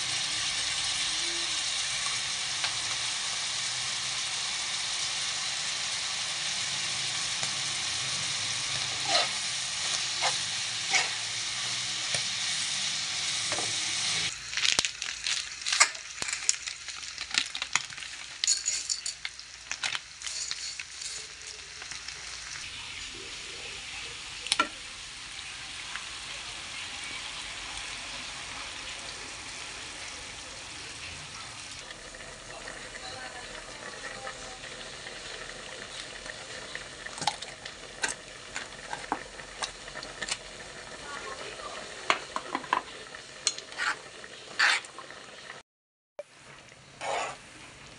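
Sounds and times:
food sizzling in a pan: 0.0 - 45.6, 46.2 - 47.9
clatter at a steel pot: 18.4 - 21.3, 42.1 - 43.9.

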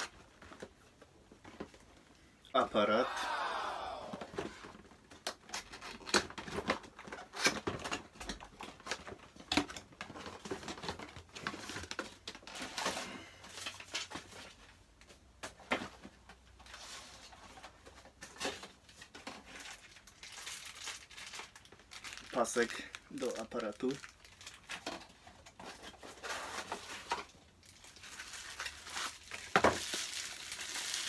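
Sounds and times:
packaging rustling: 16.7 - 31.0.

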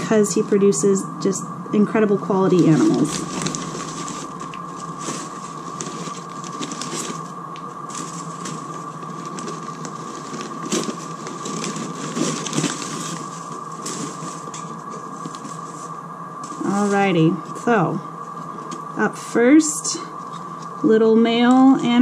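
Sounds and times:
faint humming tone: 0.0 - 22.0
newspaper rustling and crinkling: 2.5 - 17.2.

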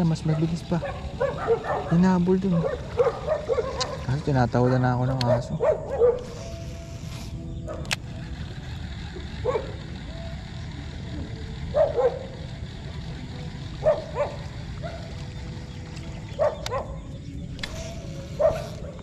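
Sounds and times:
dog barking: 0.2 - 6.2, 9.4 - 9.7, 11.7 - 12.3, 13.8 - 15.1, 16.4 - 17.0, 18.4 - 19.0
sharp click: 17.5 - 18.0.

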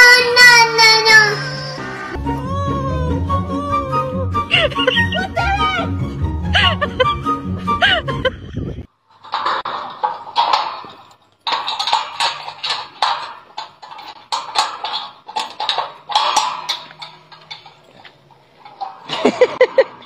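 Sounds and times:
metal gate bolt clanking: 9.1 - 20.0.

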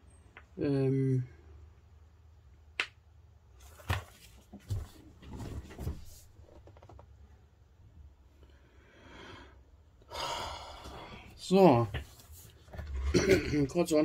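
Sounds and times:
paper rustling: 3.6 - 6.3.

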